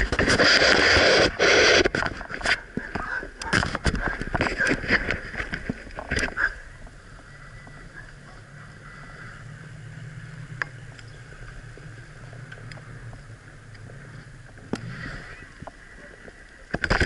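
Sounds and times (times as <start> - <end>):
bicycle rolling on paved road: 0.0 - 17.0
bicycle clicks and rattles: 9.4 - 14.9, 15.6 - 17.0.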